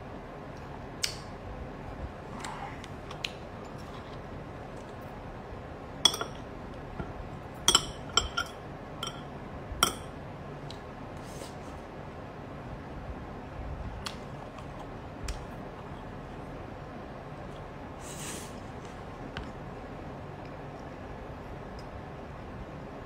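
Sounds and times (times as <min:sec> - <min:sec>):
chopsticks clinking on bowls: 0:06.0 - 0:06.5, 0:07.6 - 0:10.1.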